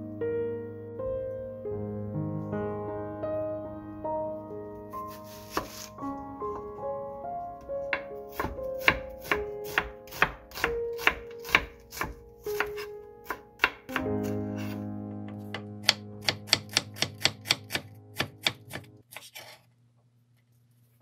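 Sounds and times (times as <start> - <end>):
soft melody of held notes: 0.0 - 9.6, 12.2 - 18.2
knife slicing onion on cutting board: 5.1 - 5.9, 7.9 - 14.8, 15.8 - 19.6.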